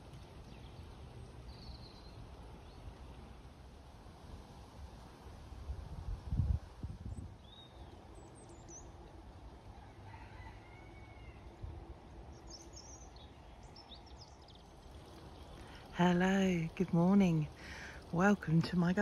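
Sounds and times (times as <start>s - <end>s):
wind bumps on microphone: 5.5s - 7.6s
birds calling: 7.4s - 19.0s.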